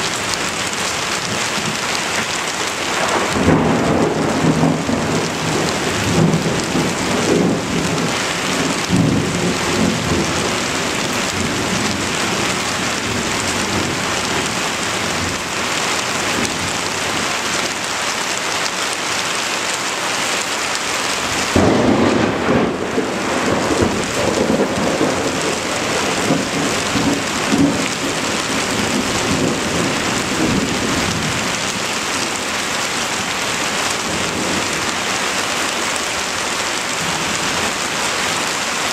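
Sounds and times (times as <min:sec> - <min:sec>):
thunder rumbling: 0:00.0 - 0:15.5, 0:21.3 - 0:35.1
heavy rain: 0:00.0 - 0:38.9
thunderclap: 0:02.8 - 0:15.4, 0:21.6 - 0:32.2.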